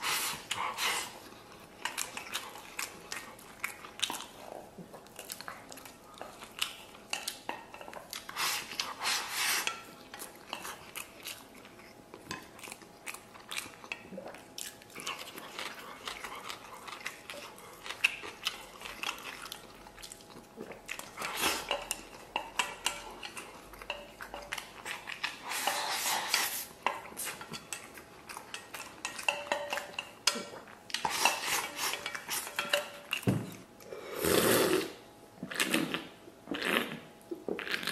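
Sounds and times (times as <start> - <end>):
chewing: 0.1 - 33.9
chopsticks scraping a steel bowl: 21.2 - 27.9, 31.0 - 32.9
swallowing a drink: 34.1 - 35.0.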